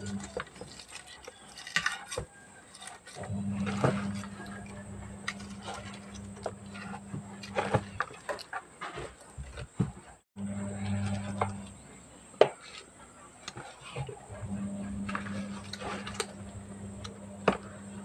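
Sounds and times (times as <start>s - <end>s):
low hum: 3.2s - 8.0s, 10.4s - 12.0s, 14.3s - 18.0s.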